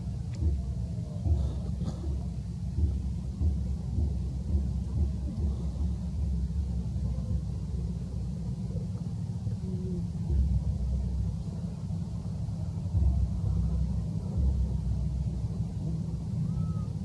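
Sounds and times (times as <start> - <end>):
low uneven rumble: 0.0 - 17.0.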